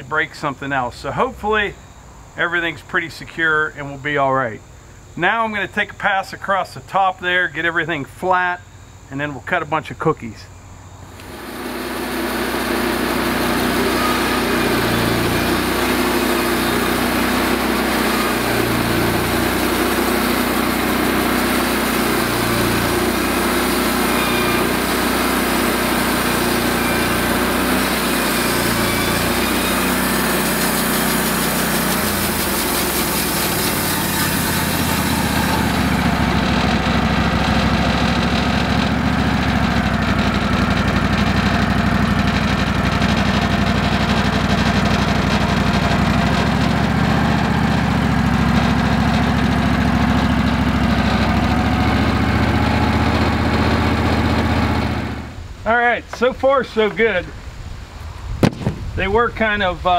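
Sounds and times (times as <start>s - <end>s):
band sawmill running: 11.0s - 57.4s.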